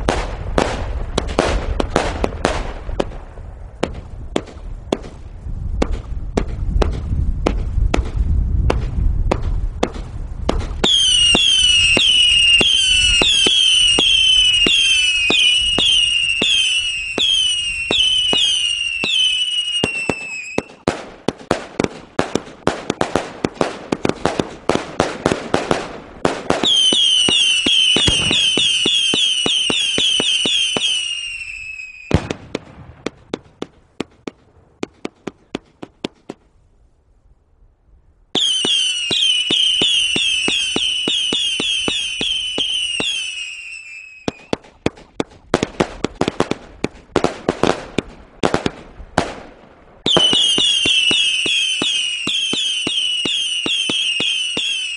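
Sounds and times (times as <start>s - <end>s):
firework bangs: 0.0s - 36.5s, 38.4s - 54.9s
firework pops: 5.8s - 16.6s, 19.8s - 30.9s, 32.1s - 36.5s, 44.2s - 54.8s
falling firework whistles: 10.7s - 20.9s, 26.6s - 32.3s, 38.4s - 44.8s, 50.1s - 54.9s.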